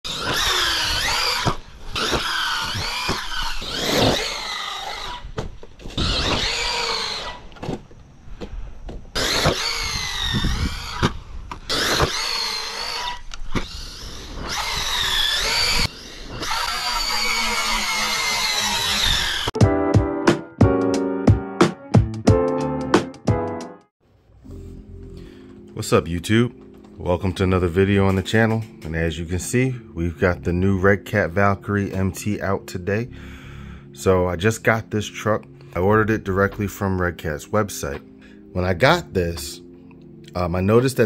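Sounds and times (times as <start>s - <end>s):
electric motor whining: 0.1s - 7.6s, 9.1s - 19.6s.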